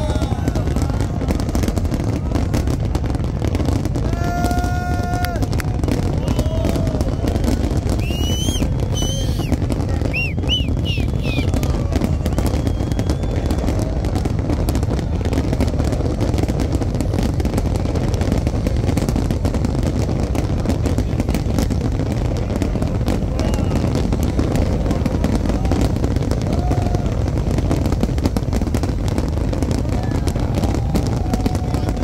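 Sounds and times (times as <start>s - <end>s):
fireworks booming and crackling: 0.0s - 32.0s
firework whistles: 3.8s - 15.6s, 20.3s - 32.0s.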